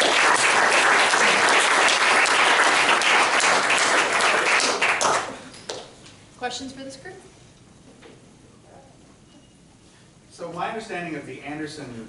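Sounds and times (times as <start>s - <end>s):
audience applauding: 0.0s - 5.6s.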